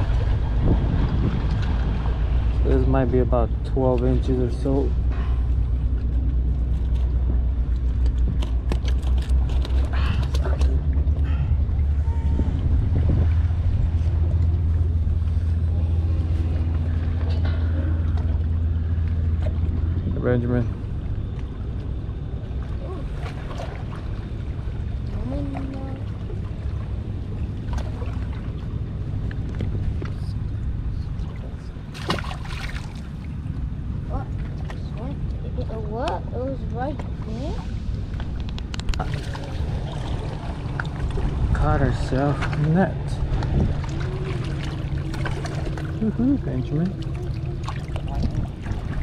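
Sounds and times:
water lapping at rocks: 0.0s - 15.6s, 22.5s - 30.3s, 31.2s - 49.0s
low rumble: 0.0s - 49.0s
fish splashing into water: 31.9s - 33.3s, 38.8s - 41.4s, 43.3s - 46.3s.

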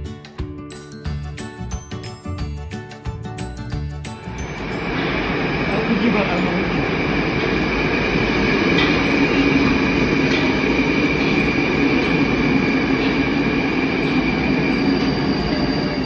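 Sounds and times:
train hum and high whine: 4.1s - 16.0s
train wheels rumbling on rails: 4.1s - 16.0s.

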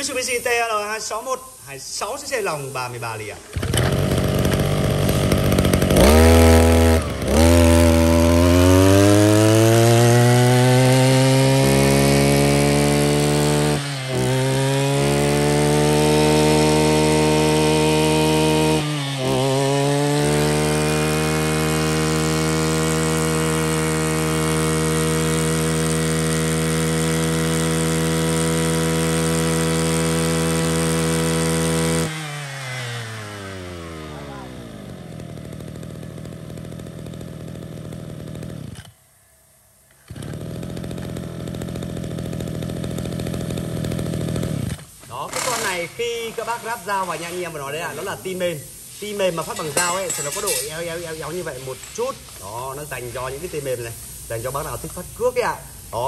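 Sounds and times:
brush cutter engine revving: 2.0s - 39.0s, 39.9s - 56.0s.

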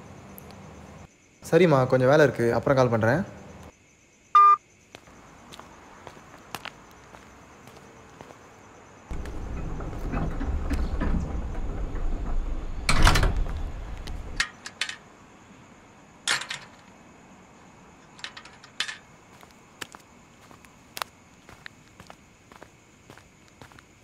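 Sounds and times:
gate banging: 9.1s - 14.4s
gate rumbling and rattling: 9.1s - 14.4s.

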